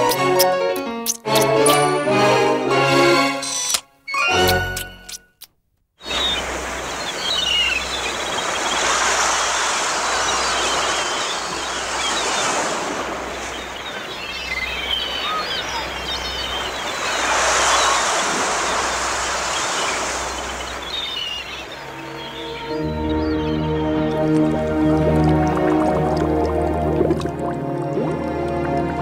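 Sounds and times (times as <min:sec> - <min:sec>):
birds chirping: 0:06.0 - 0:26.6
sea waves washing: 0:06.0 - 0:29.0.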